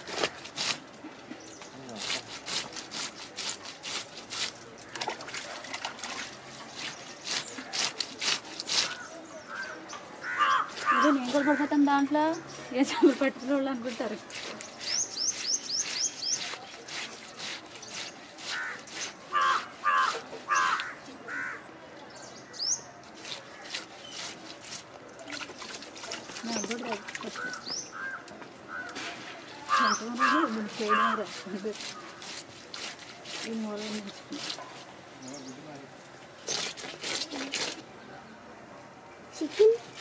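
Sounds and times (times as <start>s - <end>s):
knife scraping fish scales: 2.0s - 4.9s, 6.3s - 9.0s, 13.9s - 20.9s, 23.0s - 24.9s, 29.7s - 34.9s, 36.4s - 37.8s
crow cawing: 8.8s - 11.8s, 18.5s - 21.6s, 26.9s - 29.0s, 29.7s - 31.3s.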